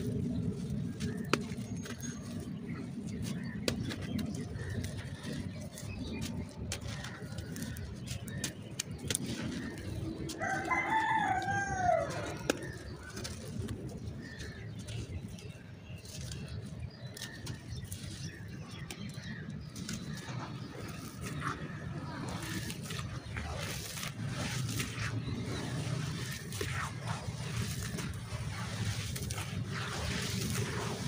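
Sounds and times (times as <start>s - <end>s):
hands crushing dry clay: 0.0s - 31.0s
bird call rising and falling: 9.8s - 12.9s.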